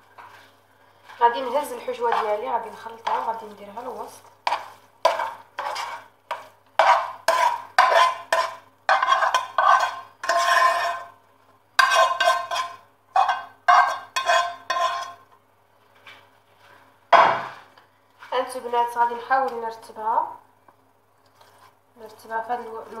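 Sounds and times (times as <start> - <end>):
scraping food in metal pan: 1.3 - 3.4, 4.4 - 11.2, 11.8 - 15.2.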